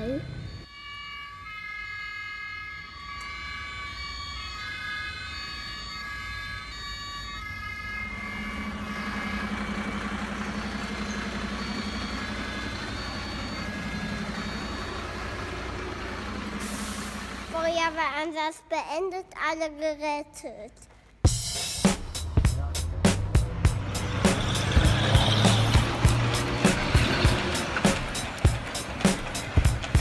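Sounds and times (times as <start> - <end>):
toy electronic siren: 0.0 - 16.2.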